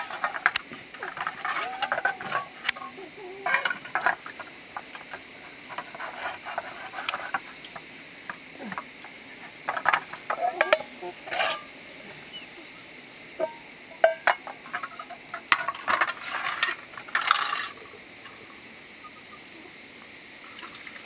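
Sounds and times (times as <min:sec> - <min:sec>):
metal dishes clinking and clattering: 0:00.0 - 0:04.4, 0:09.7 - 0:11.7, 0:13.4 - 0:18.0.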